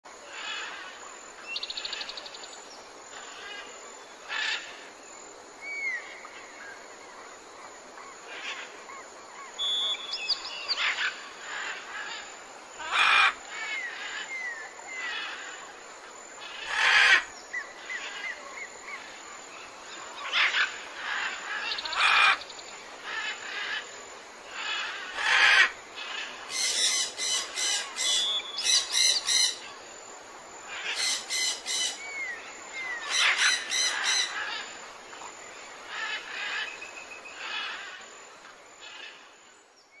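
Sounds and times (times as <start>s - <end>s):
whistled bird chirps: 9.6s - 10.8s
harsh bird squawks: 33.0s - 34.6s.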